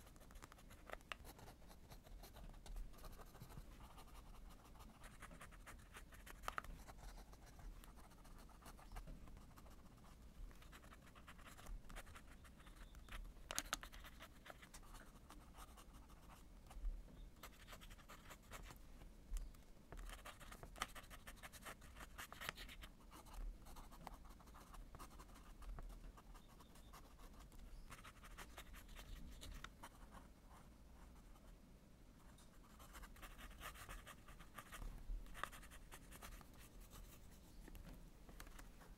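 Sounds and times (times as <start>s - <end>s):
pen nib scratching paper: 0.0s - 16.4s, 20.0s - 30.2s, 32.7s - 37.2s.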